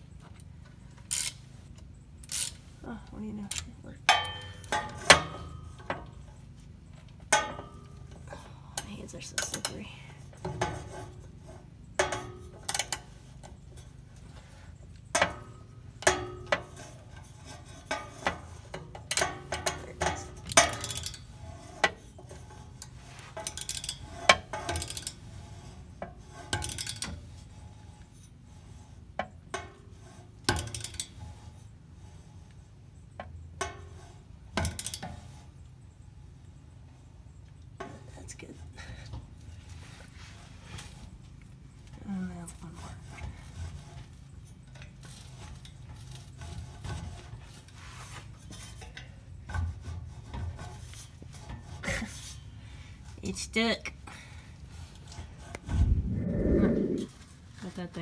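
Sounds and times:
ratchet wrench clicking: 1.1s - 1.4s, 2.2s - 2.6s.

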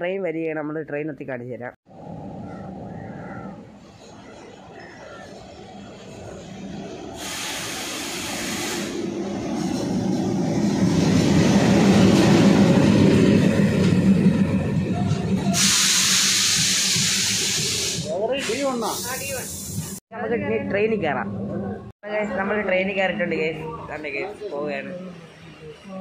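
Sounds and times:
train coaches rolling past: 1.9s - 20.0s
diesel locomotive engine rumble: 1.9s - 26.0s
loud hiss: 7.2s - 9.2s, 15.6s - 20.0s.

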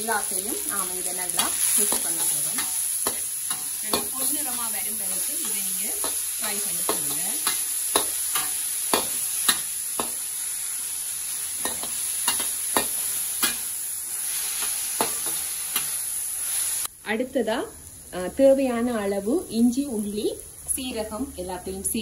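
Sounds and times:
vegetables sizzling in hot oil: 0.0s - 22.0s.

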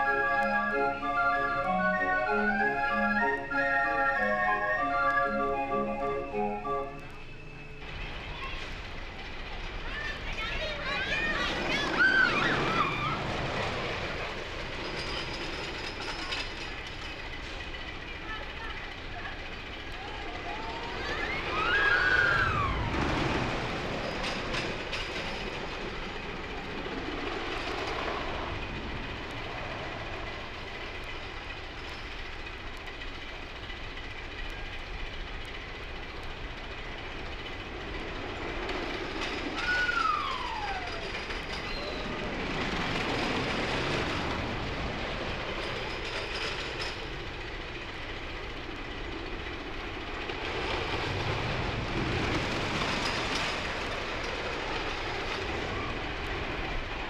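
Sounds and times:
high-pitched falling sounds: 0.0s - 7.5s, 39.6s - 42.1s
rail cars rattling and rumbling: 0.0s - 57.0s.

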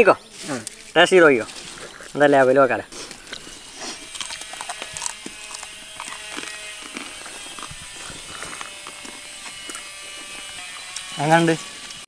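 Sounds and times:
chips crunching while chewed: 2.9s - 11.1s.

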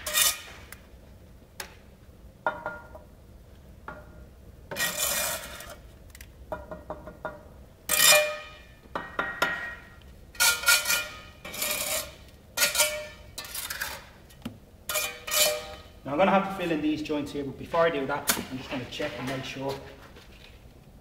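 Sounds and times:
trowel scraping mortar and bricks: 4.7s - 5.8s, 10.4s - 14.2s, 14.9s - 15.8s.

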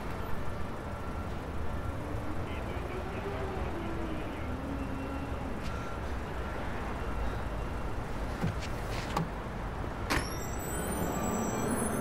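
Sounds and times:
city traffic rumble: 0.0s - 12.0s.

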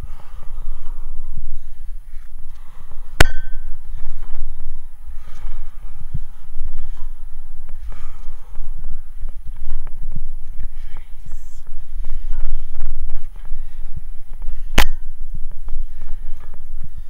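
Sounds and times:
low muffled rumbling: 0.0s - 17.0s
metallic clang: 3.2s - 3.8s.

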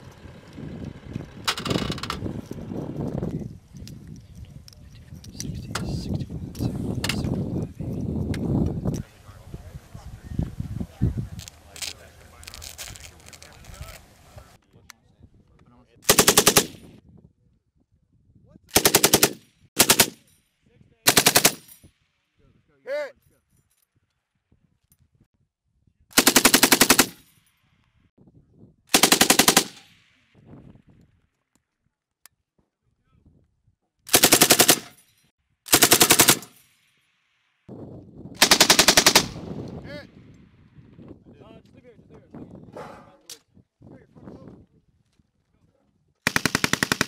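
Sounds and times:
machine gun firing bursts: 16.1s - 16.9s, 18.7s - 20.2s, 21.1s - 21.7s, 26.2s - 27.2s, 28.9s - 29.9s, 34.1s - 35.0s, 35.7s - 36.6s, 38.4s - 39.5s, 46.2s - 47.0s.

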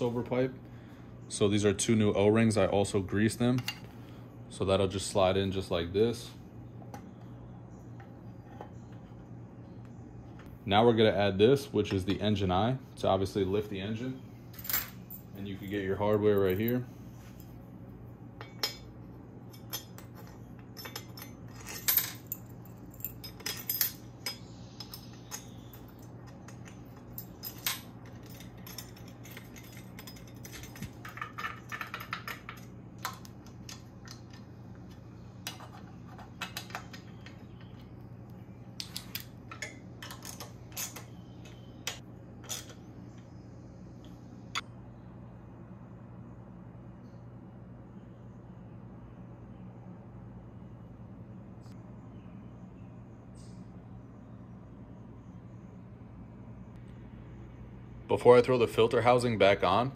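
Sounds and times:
low hum: 0.0s - 59.9s
metal tools clinking: 3.4s - 3.9s, 14.5s - 17.6s, 18.4s - 34.5s, 38.8s - 42.8s.

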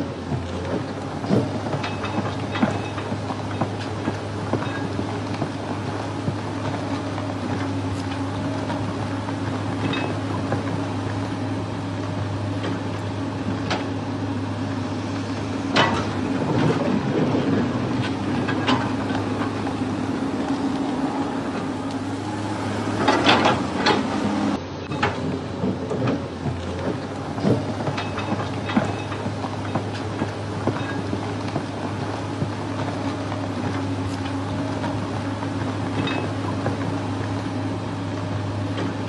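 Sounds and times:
low machine hum: 0.0s - 39.0s.

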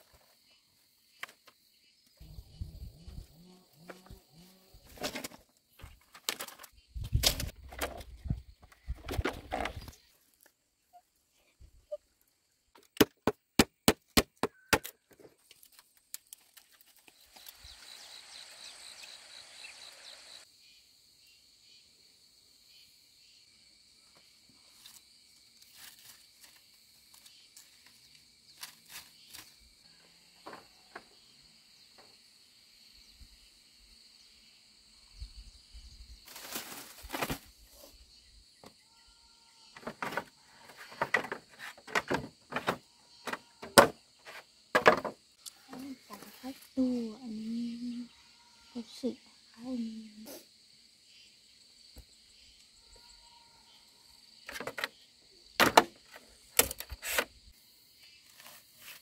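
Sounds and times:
high insect drone: 0.1s - 6.0s, 17.2s - 59.0s
machete chopping bamboo: 13.0s - 15.0s
bamboo poles knocking: 40.9s - 45.2s.

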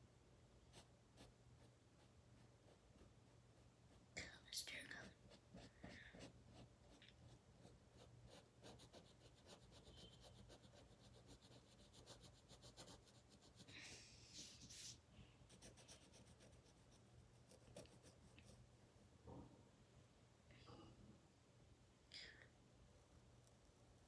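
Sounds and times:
marker scratching on paper: 5.2s - 13.7s.

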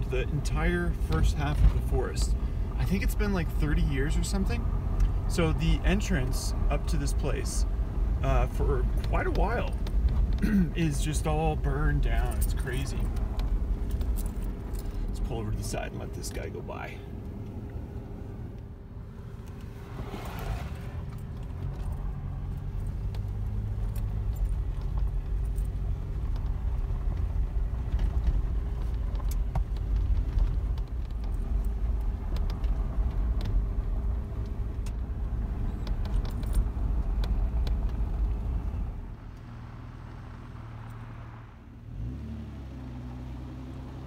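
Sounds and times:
tyres and engine rumble: 0.0s - 44.0s
small clicks from road and cabin: 0.2s - 39.6s, 40.8s - 41.1s.

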